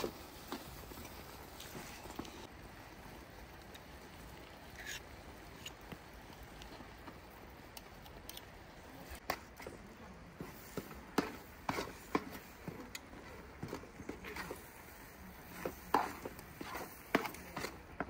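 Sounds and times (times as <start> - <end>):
metal ladle scraping a pot: 4.6 - 5.8, 15.4 - 18.0.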